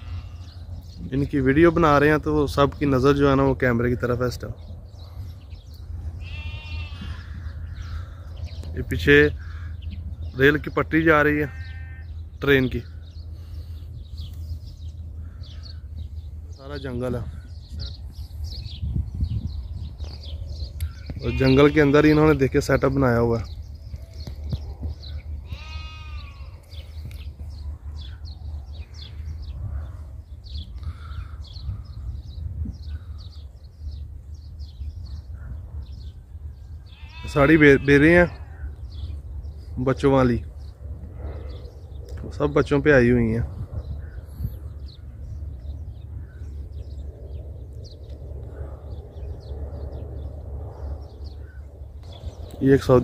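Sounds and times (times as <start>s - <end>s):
sheep bleating: 0.0s - 0.6s, 6.2s - 7.5s, 11.4s - 12.2s, 25.4s - 26.8s, 36.9s - 38.6s
small birds chirping: 0.0s - 53.0s.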